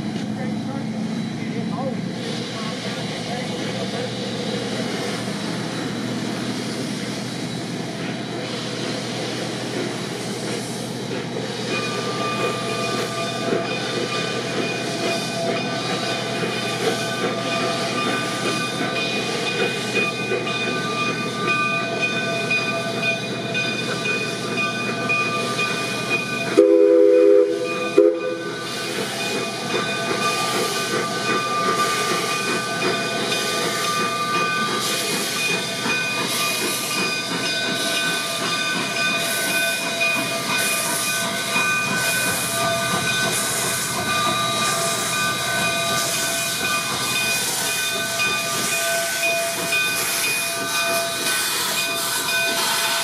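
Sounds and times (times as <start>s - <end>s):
steam locomotive hissing: 0.0s - 53.0s
steam whistle blast: 26.6s - 28.5s.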